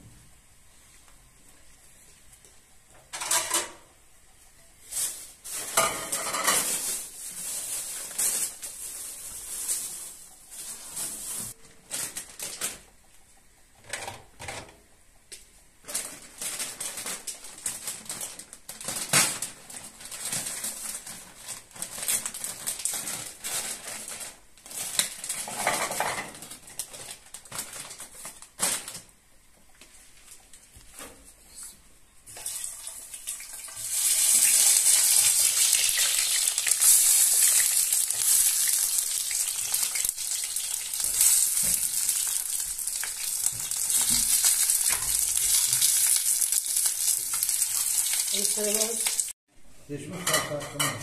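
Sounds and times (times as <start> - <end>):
dishes and metal utensils clattering: 3.1 - 3.9, 5.5 - 7.1, 25.3 - 26.5, 50.0 - 51.0.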